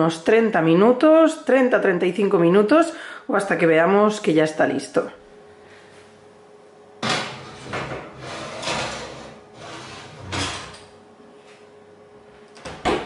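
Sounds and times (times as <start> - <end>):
metal oven rack scraping and rattling: 7.0 - 10.9.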